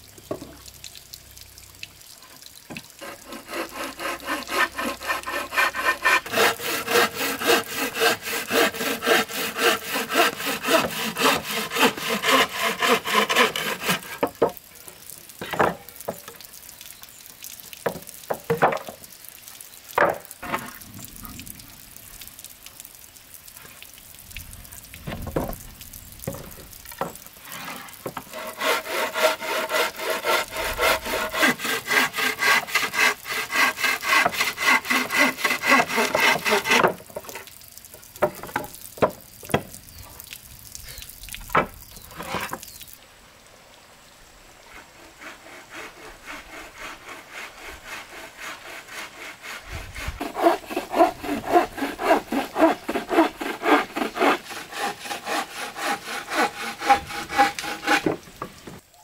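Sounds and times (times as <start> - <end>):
bow saw cutting wood: 3.0 - 14.4, 27.0 - 37.5, 44.6 - 58.5.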